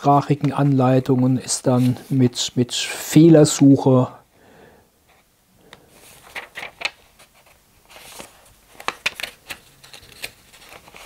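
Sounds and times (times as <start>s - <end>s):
paper pages rustling: 5.9s - 11.0s.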